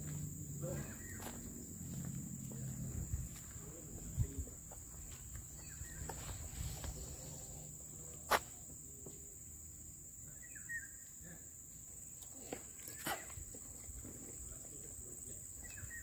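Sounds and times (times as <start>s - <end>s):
footsteps on pavement: 0.0s - 7.2s, 8.1s - 9.3s
high-pitched insect drone: 0.0s - 16.0s.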